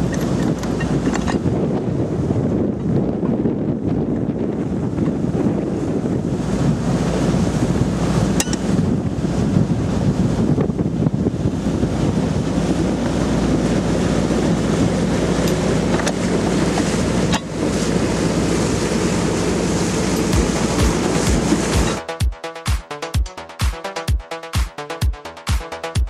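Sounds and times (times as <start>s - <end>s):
rushing water: 0.0s - 2.6s, 4.0s - 26.0s
wind buffeting microphone: 0.0s - 22.0s
low engine drone: 5.8s - 26.0s.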